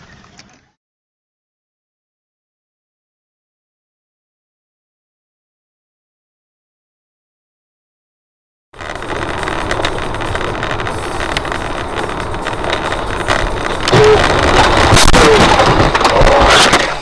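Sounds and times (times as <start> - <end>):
road noise inside car: 8.8 - 17.0
car crash with knocks and clatter: 13.4 - 17.0.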